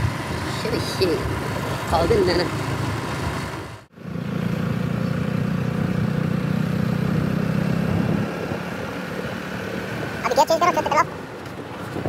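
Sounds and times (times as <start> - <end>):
motorcycle engine running: 0.0 - 11.1
road noise rushing: 0.0 - 12.0.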